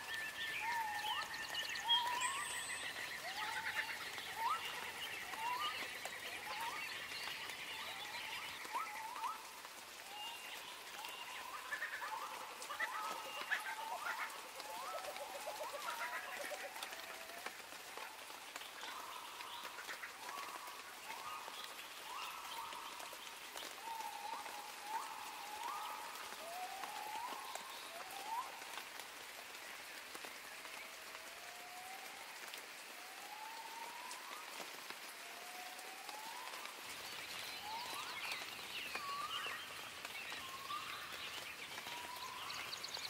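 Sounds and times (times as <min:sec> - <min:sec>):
steady rain: 0:00.0 - 0:43.0
bird calling: 0:10.2 - 0:17.2.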